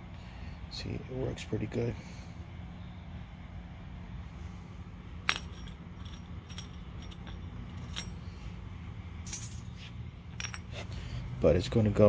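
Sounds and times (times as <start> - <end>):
low steady hum: 0.0 - 12.0
metal clinking on concrete: 5.2 - 8.4, 9.2 - 11.0.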